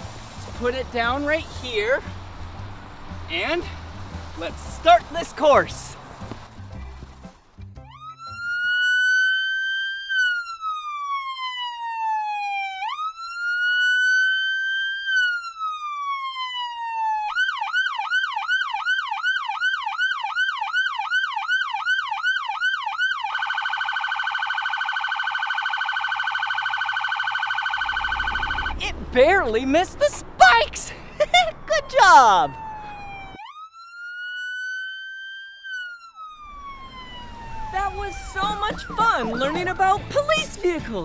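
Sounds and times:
police siren: 7.8s - 29.0s, 31.2s - 40.5s.

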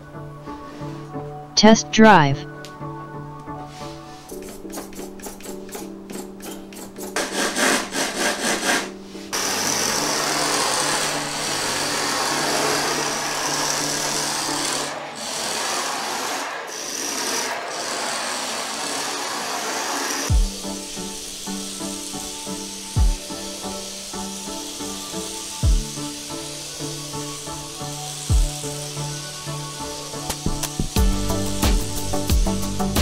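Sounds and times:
tyres hissing and sliding: 7.2s - 31.0s.

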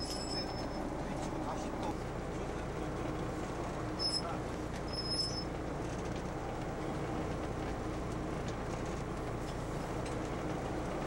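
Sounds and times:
high beep: 0.0s - 0.8s
boat engine rumble: 0.0s - 11.0s.

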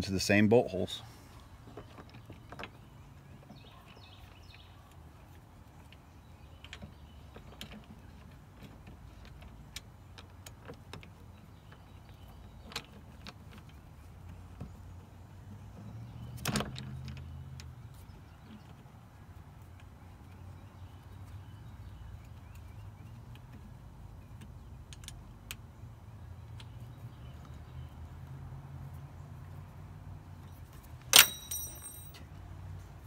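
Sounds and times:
light clicks and taps of bolts: 22.2s - 25.7s, 26.4s - 27.6s.

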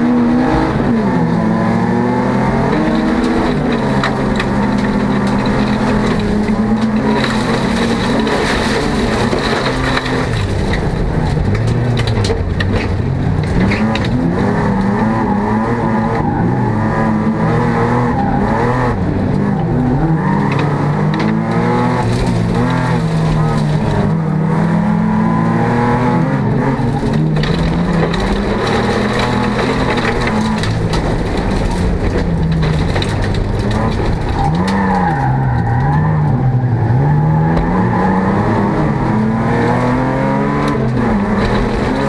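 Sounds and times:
car engine accelerating: 0.0s - 42.0s
clicks and knocks through car body: 2.7s - 14.9s, 19.2s - 24.3s, 26.7s - 36.0s, 40.5s - 42.0s.

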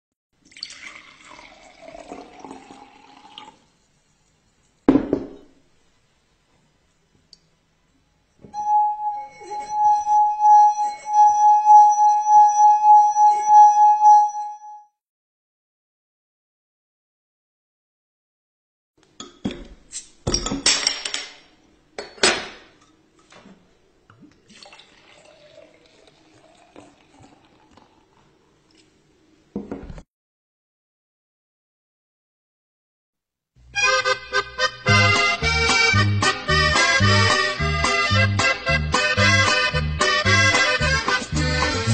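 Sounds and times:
water pouring into glass: 0.4s - 3.7s, 24.2s - 28.2s.

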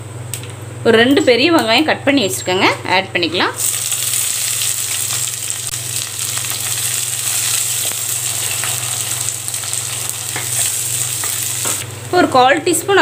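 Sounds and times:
steady low hum: 0.0s - 13.0s
onions sizzling in hot oil: 3.6s - 12.3s.

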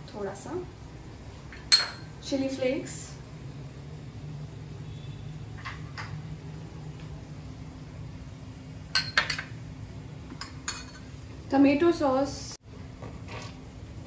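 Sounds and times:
spoon clinking glass bowls: 1.6s - 2.1s, 9.0s - 9.5s, 10.4s - 11.1s.

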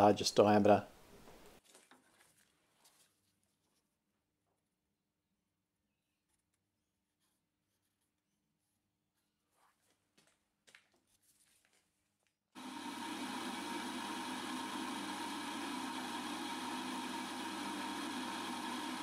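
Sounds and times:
faint handling clicks and rubs: 1.2s - 3.9s
metal lathe whirring: 12.6s - 19.0s.

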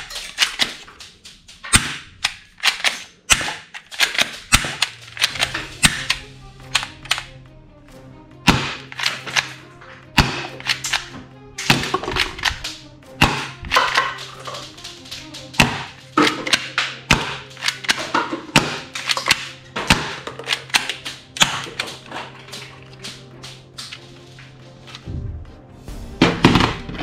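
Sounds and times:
toy pistol parts clicking: 0.0s - 7.4s, 8.9s - 9.6s, 10.5s - 12.8s, 16.2s - 18.1s, 18.8s - 23.2s
background music: 0.0s - 27.0s.

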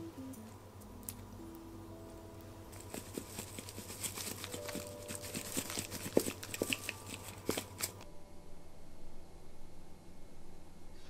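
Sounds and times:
shaker light taps and clicks: 2.7s - 8.0s.

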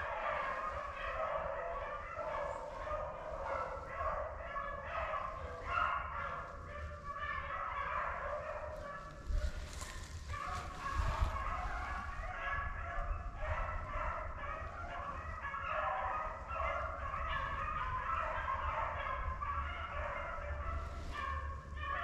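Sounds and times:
beagles baying: 0.0s - 22.0s
brushing rustle: 8.6s - 12.1s.

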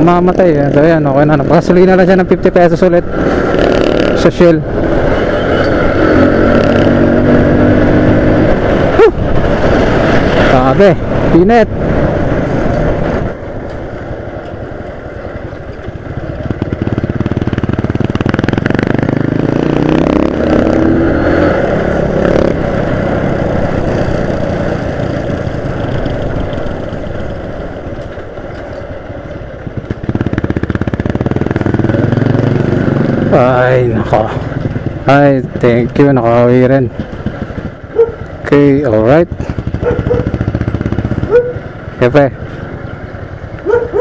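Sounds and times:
small motorcycle engine: 37.2s - 41.6s.

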